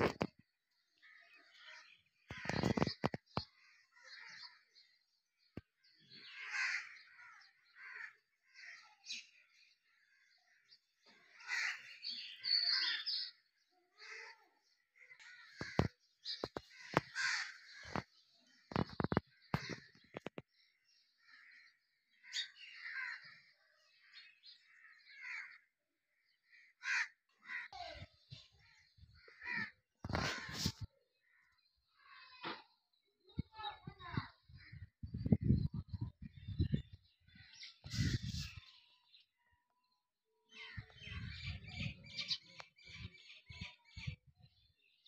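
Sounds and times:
crows cawing: 0:01.0 - 0:02.9, 0:03.6 - 0:04.7, 0:06.2 - 0:09.0, 0:11.1 - 0:13.0, 0:13.9 - 0:18.1, 0:18.7 - 0:20.3, 0:21.2 - 0:23.6, 0:24.7 - 0:25.7, 0:26.4 - 0:31.5.

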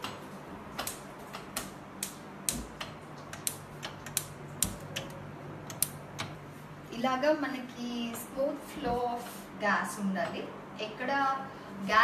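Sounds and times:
gas hob igniter clicking: 0:00.8 - 0:06.4.

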